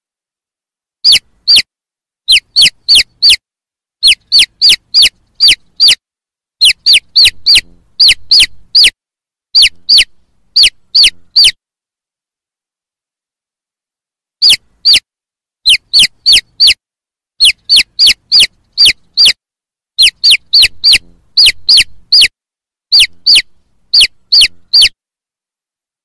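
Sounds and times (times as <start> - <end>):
chicks peeping: 2.3 - 3.4, 4.0 - 6.0, 6.6 - 8.9, 9.6 - 11.6, 15.7 - 16.8, 17.4 - 19.4, 20.0 - 22.3, 22.9 - 24.9.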